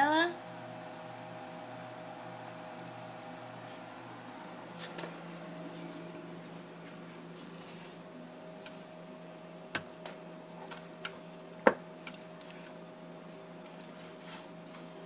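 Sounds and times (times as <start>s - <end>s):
low hum: 0.3s - 10.6s.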